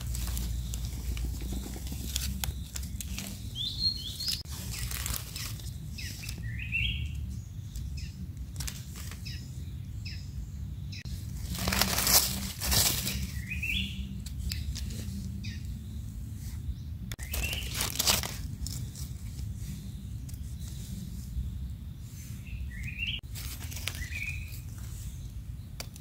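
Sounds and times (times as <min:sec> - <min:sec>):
dry leaves rustling and crackling: 0:00.0 - 0:09.4, 0:11.1 - 0:15.6, 0:17.2 - 0:20.8, 0:22.8 - 0:25.0
bird chirps: 0:00.0 - 0:11.8, 0:13.0 - 0:25.9.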